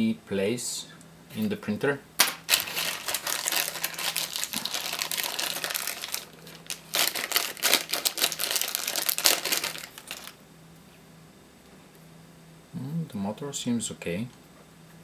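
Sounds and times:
plastic bag crinkling: 2.2s - 10.4s.

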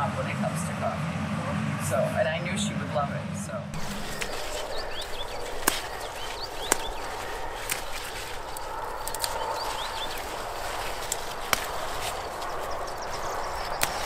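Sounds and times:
plant stems snapping: 3.8s - 14.0s
plants rustling: 3.8s - 14.0s.

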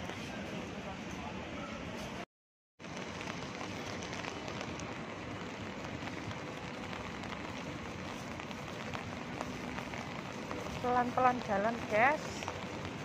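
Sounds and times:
raindrops ticking: 2.8s - 13.0s
steady rainfall on street: 2.8s - 13.0s.

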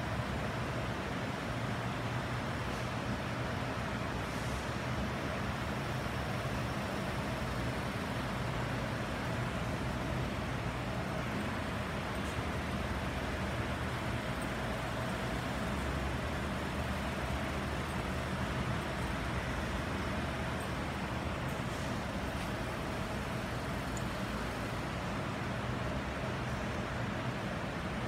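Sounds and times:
interior rumble and hiss: 0.0s - 28.0s.

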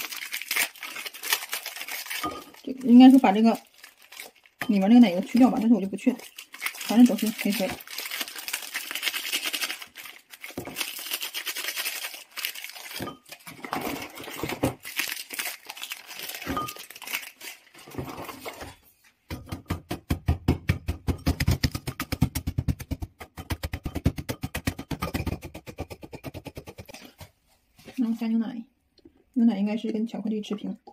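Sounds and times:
foil wrappers crinkling and tearing: 0.0s - 18.8s
cookies shaken into ceramic bowl: 4.8s - 13.0s
wooden stick pounding cookies: 19.3s - 27.1s.

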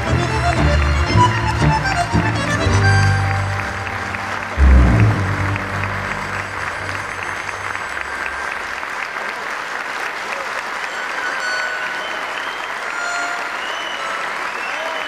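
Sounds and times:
audience applauding: 0.0s - 15.0s
low music note: 4.4s - 8.4s.

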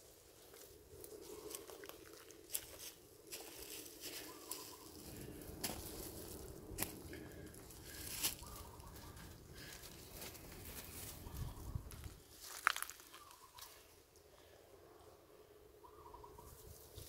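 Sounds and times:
monkeys rustling leaves: 2.4s - 6.8s, 7.7s - 11.6s.

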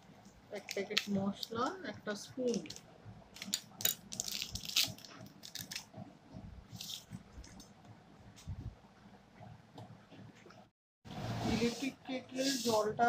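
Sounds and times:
food packaging crinkling: 3.4s - 5.8s.

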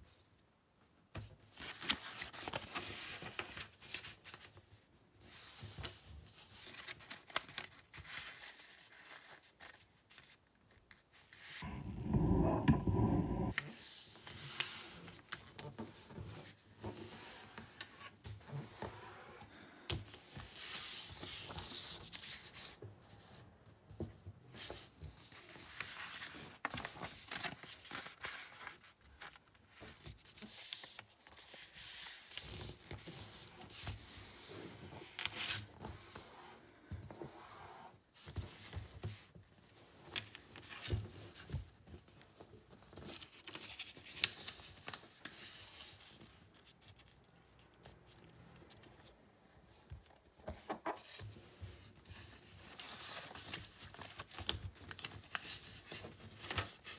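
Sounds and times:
paper rustling and crinkling: 1.2s - 11.6s, 24.6s - 36.2s, 38.2s - 56.9s.

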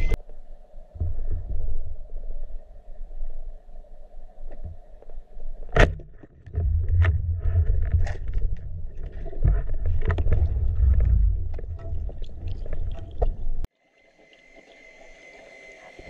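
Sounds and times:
underwater rumble: 0.0s - 13.7s
hiss: 13.9s - 16.0s.

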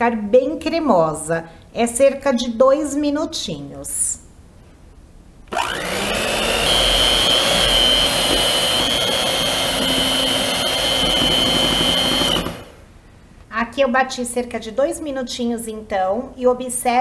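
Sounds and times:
electric hand mixer whipping: 5.5s - 12.9s.

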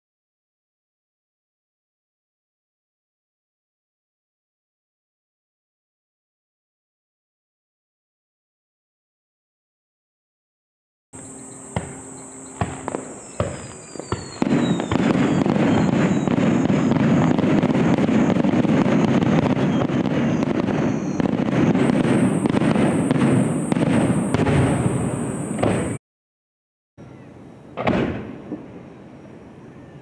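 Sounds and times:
fireworks bursting: 11.2s - 26.0s, 27.8s - 28.8s.

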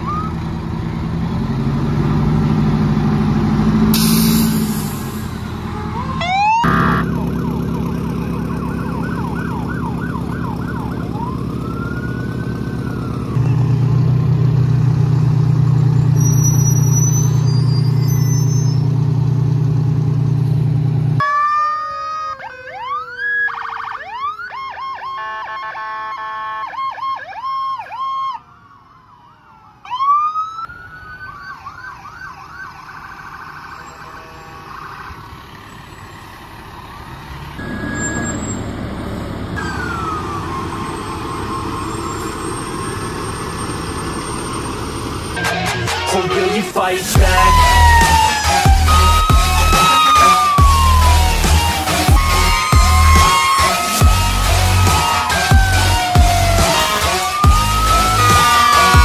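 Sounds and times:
electronic sirens yelping: 0.0s - 1.0s, 5.1s - 19.0s, 21.2s - 59.0s
engine drone: 0.0s - 21.2s, 33.5s - 59.0s
fire truck sirens wailing: 0.0s - 59.0s
long low horn blast: 55.7s - 59.0s.

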